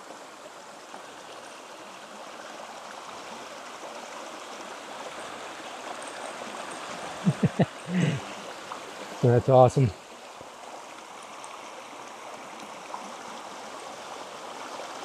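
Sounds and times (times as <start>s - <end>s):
creek rushing over rocks: 0.0s - 15.0s.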